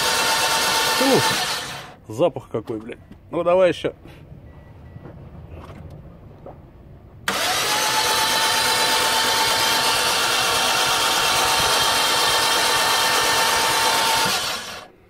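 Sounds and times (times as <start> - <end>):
starter motor cranking engine: 0.0 - 2.0, 7.3 - 14.9.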